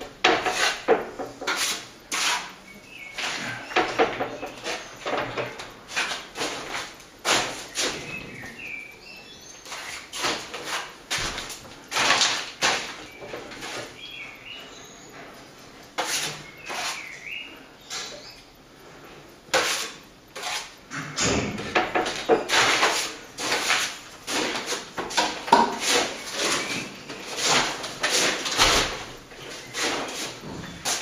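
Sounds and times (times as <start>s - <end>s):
hand tool scraping plaster: 0.2s - 8.2s, 9.6s - 14.0s, 16.0s - 17.1s, 19.5s - 20.8s, 21.8s - 31.0s.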